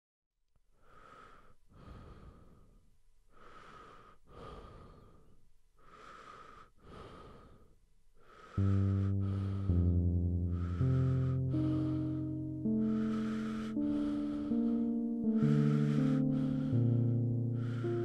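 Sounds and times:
person breathing heavily: 0.7s - 18.0s
low sustained musical chord: 8.6s - 18.0s.

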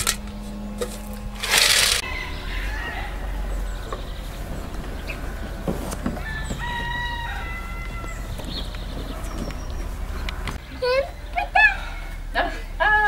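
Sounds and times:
low rumble: 0.0s - 13.0s
rooster crowing: 0.6s - 10.6s.

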